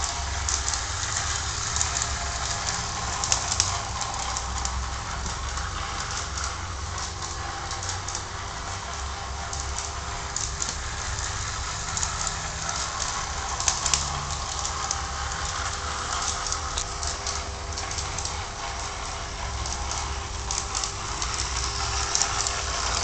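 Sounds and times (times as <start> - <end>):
model train motor hum: 0.0 - 23.0
wheels clicking on track: 0.0 - 23.0.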